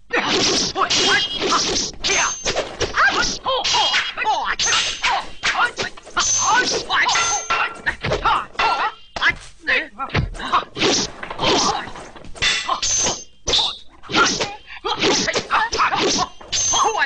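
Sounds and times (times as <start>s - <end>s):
fighters shouting: 0.1s - 12.0s, 14.0s - 17.0s.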